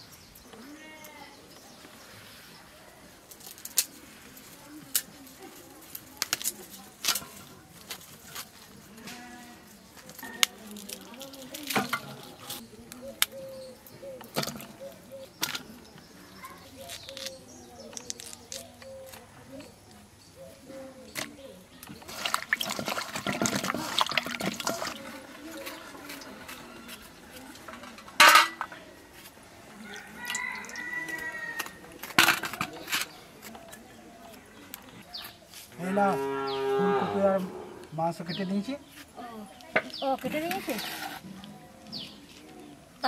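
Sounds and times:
dove cooing: 13.0 - 15.4
vegetables clinking in steel bowl: 27.5 - 28.8
rooster crowing: 29.8 - 31.8.

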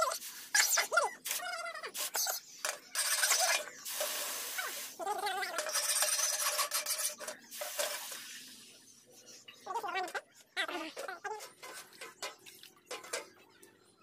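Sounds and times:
hot blade sizzling in liquid: 3.0 - 8.5.

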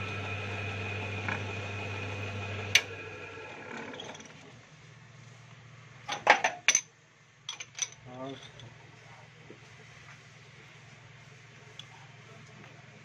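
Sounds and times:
machine hum: 0.0 - 4.0
metal clinks and knocks: 7.5 - 8.8.

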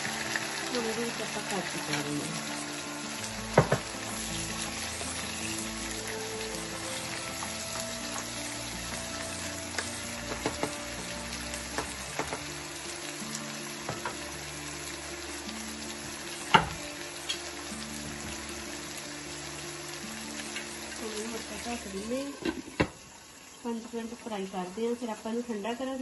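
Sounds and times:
food sizzling in oil: 0.0 - 26.0
sharp knocks on a pan: 3.6 - 3.9, 11.8 - 12.5.

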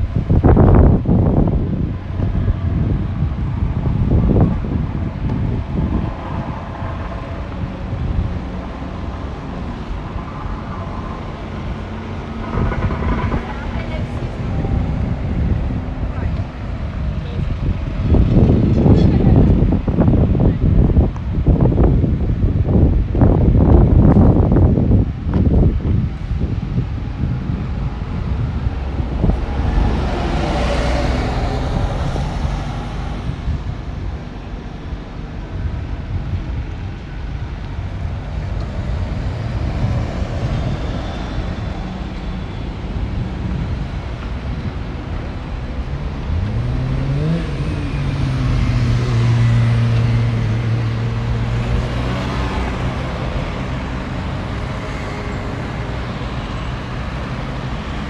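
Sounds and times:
road traffic passing: 0.0 - 58.0
vehicle engine revving: 44.5 - 58.0.

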